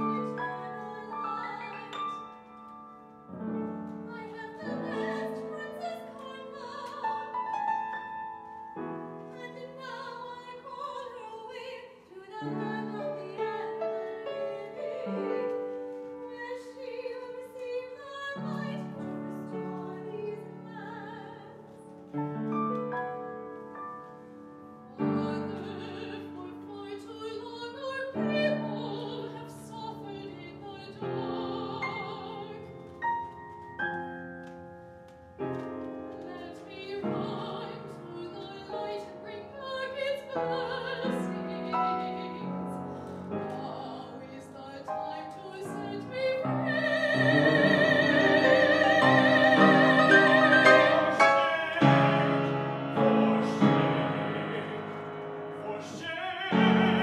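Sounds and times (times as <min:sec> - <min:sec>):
piano accompaniment: 0:00.0 - 0:57.0
operatic singing: 0:43.4 - 0:57.0.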